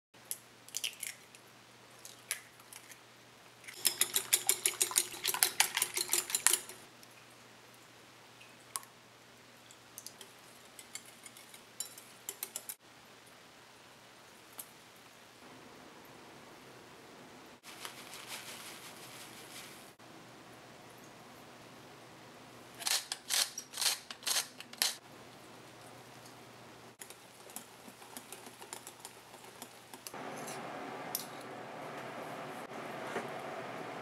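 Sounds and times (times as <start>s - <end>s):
eggs beaten in glass bowl: 3.8s - 6.8s, 10.8s - 12.8s.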